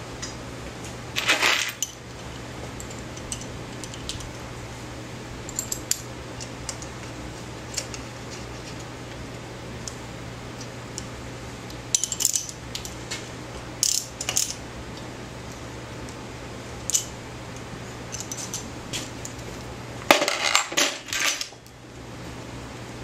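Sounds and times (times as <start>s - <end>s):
steady low hum: 0.0s - 23.0s
metal tools clinking on bike parts: 11.9s - 12.9s, 18.1s - 18.6s.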